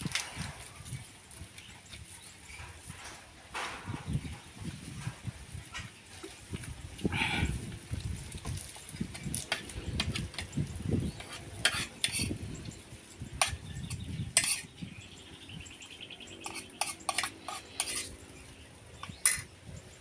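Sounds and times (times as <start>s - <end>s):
metal spoon clinking on plate: 13.4s - 14.7s, 16.4s - 18.1s.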